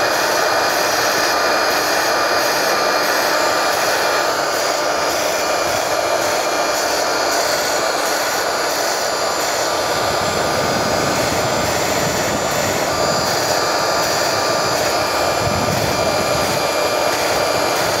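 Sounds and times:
cutting machine motor whining: 0.0 - 18.0.

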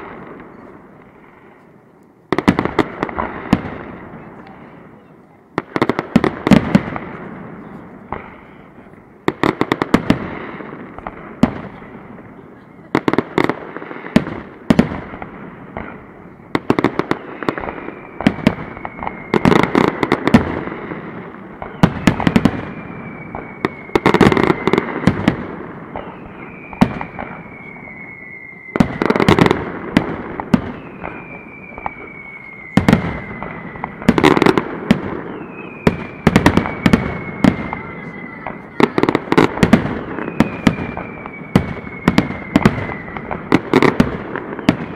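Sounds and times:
fireworks bursting with loud bangs: 0.0 - 44.9
falling firework whistle: 9.4 - 44.9.

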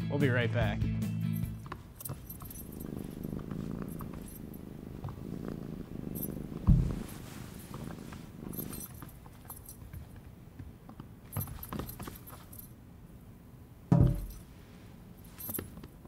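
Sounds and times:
cat purring: 1.4 - 10.2
loud low thump: 13.9 - 14.4.

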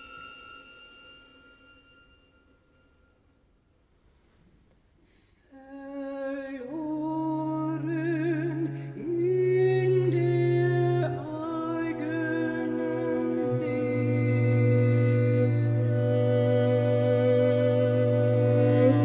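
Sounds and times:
woman singing with vibrato: 5.5 - 19.0
low bowed strings: 7.0 - 19.0.

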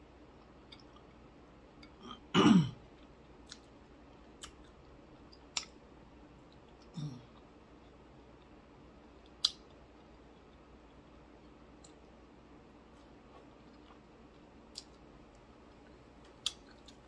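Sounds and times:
lip-smacking clicks while chewing: 3.4 - 5.8, 9.2 - 9.8, 15.7 - 17.0.

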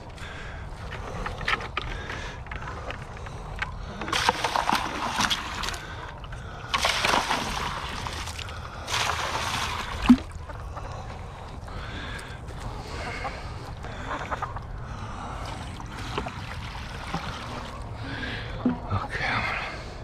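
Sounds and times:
water pouring and splashing: 3.9 - 6.0, 6.7 - 10.4, 15.5 - 18.0.

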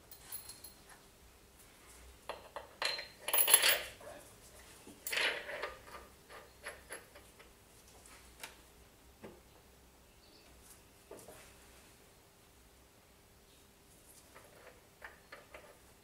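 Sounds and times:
metal tools clattering: 2.5 - 4.0.

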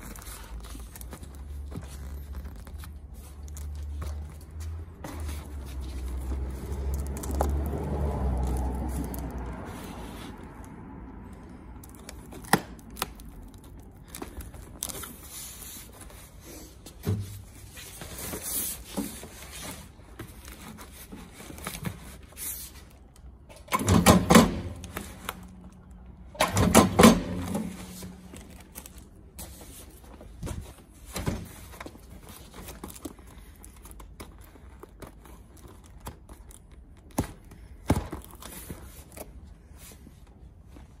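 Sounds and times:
cardboard and plastic wrapping rustling: 0.0 - 23.5, 24.5 - 26.3, 26.9 - 41.0
electric stapler driving staples: 23.6 - 24.9.

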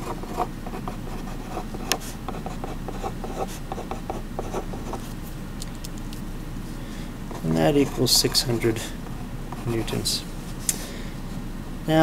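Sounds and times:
pen scratching on paper: 0.0 - 5.1, 7.3 - 8.7.

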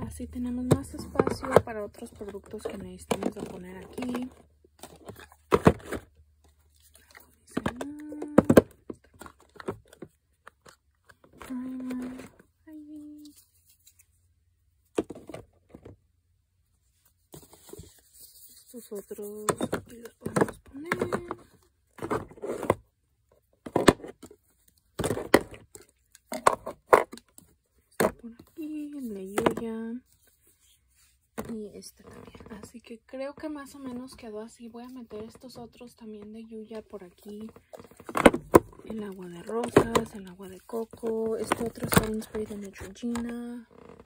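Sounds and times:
cosmetics rustling and scraping: 0.0 - 16.0, 16.7 - 44.0
boxes and bottles knocking: 0.3 - 4.3, 19.4 - 22.6, 37.5 - 43.4.

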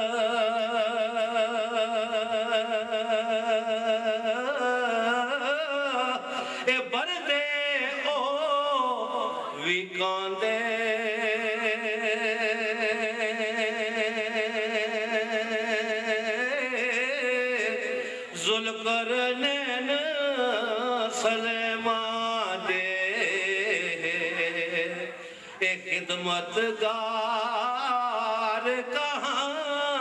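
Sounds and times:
man chanting unaccompanied: 0.0 - 30.0.

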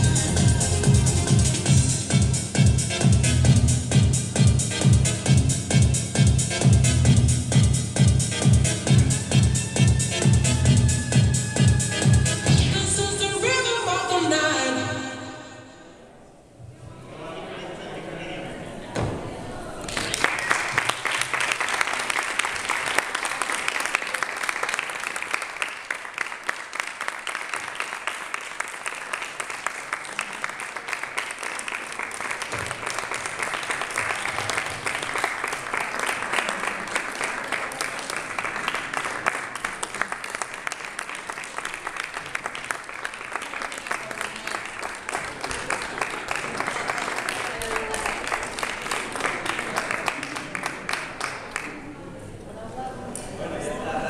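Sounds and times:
audience applauding: 19.8 - 52.0.

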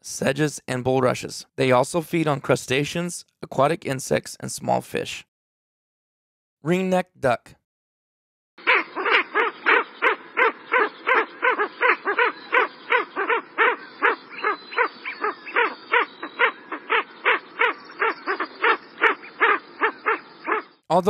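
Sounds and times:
duck calling: 8.6 - 20.7.

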